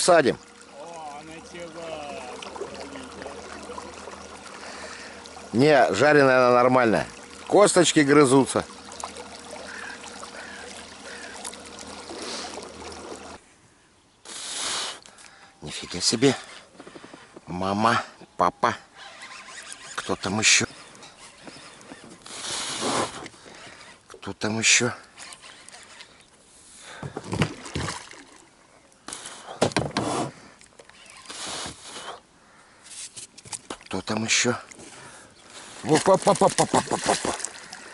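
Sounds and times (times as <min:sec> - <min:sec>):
water trickling and lapping: 0:00.0 - 0:13.5, 0:14.2 - 0:37.9
low hum: 0:00.1 - 0:13.6.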